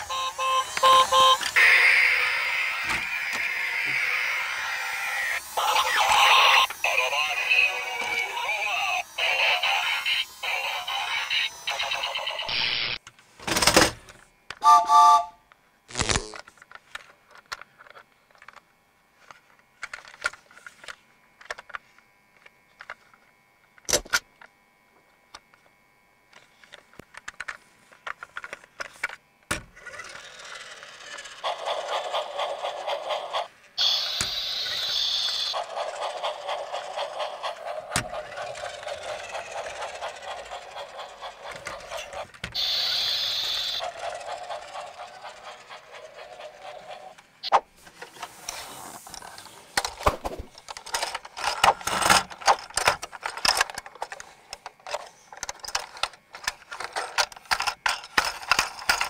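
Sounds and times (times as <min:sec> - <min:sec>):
toy train motor whirring: 0:00.0 - 0:13.0, 0:15.9 - 0:18.6, 0:19.2 - 0:23.2, 0:26.3 - 0:59.0
plastic toy clicks and knocks: 0:49.8 - 0:59.0.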